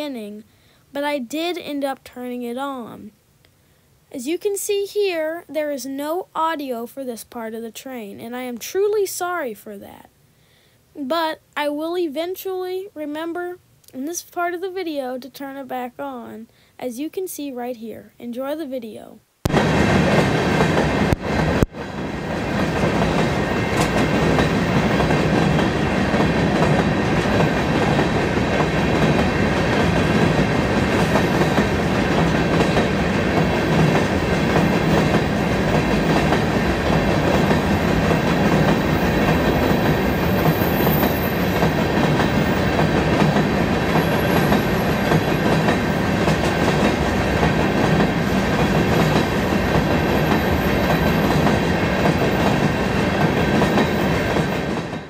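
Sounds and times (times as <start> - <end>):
freight train wheels rattling: 19.6 - 55.0.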